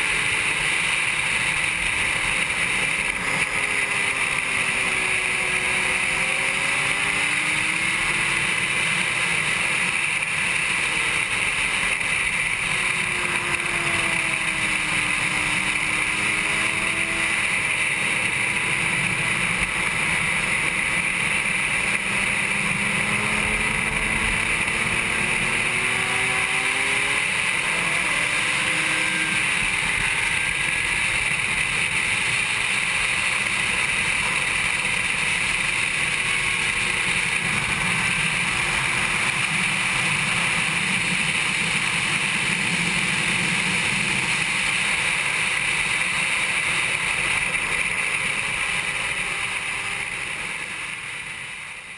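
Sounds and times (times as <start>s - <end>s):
motorcycle engine revving: 0.0s - 51.9s.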